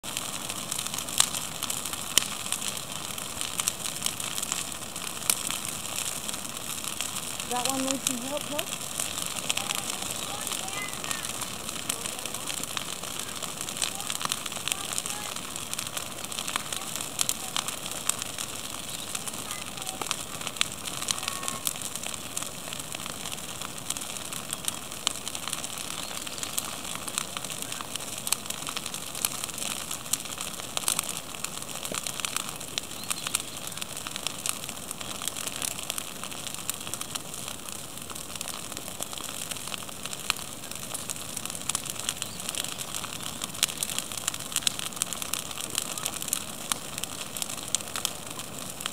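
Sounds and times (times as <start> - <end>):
bonfire crackling and popping: 0.0 - 48.9
fire hissing: 0.0 - 48.9.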